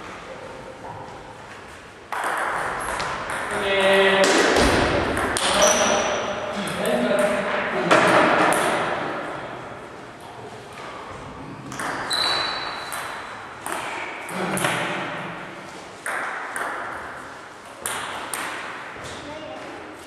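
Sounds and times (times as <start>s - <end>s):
table tennis ball hits: 2.1s - 3.6s, 4.2s - 6.0s, 6.7s - 9.2s, 11.7s - 15.4s, 16.0s - 17.2s, 17.8s - 18.9s.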